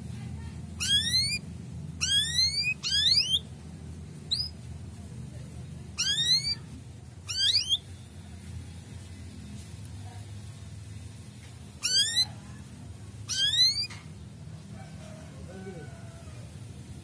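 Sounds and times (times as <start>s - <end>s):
canary chirping: 0.6s - 4.7s, 5.8s - 9.3s, 11.7s - 14.4s.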